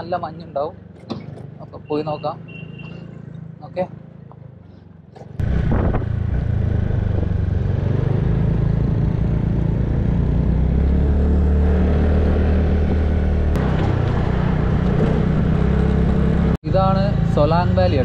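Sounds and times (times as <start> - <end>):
road and wind noise: 0.0 - 18.0
scooter engine droning: 5.3 - 18.0.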